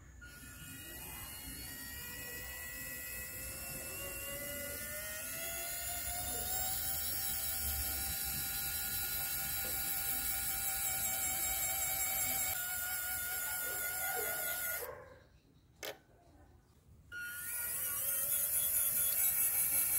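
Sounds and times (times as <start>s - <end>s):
small electric motor whining: 0.0s - 15.0s, 17.1s - 19.9s.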